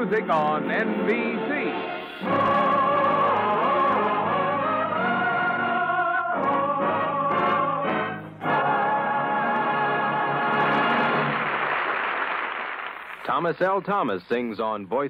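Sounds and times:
operatic singing: 0.0s - 11.3s
orchestral accompaniment: 0.0s - 11.4s.

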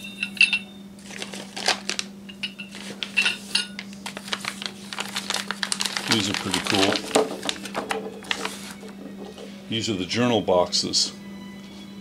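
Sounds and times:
metal parts clinking and knocking: 0.0s - 0.8s, 2.3s - 3.8s.

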